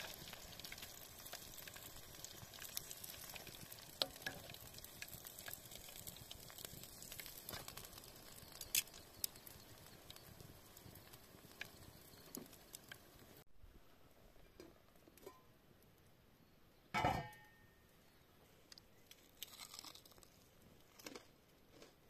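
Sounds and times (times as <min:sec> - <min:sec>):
campfire crackling and popping: 0:00.0 - 0:13.4
soft steady hiss: 0:00.0 - 0:21.9.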